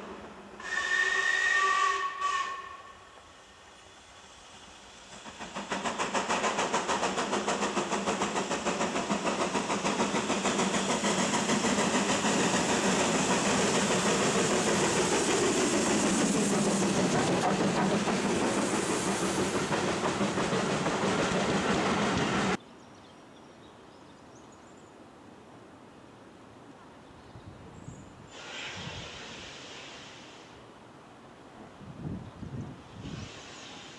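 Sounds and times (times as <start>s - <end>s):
rumble of train coaches: 0.0s - 22.6s, 26.9s - 33.9s
steam locomotive exhaust beating: 0.0s - 22.6s.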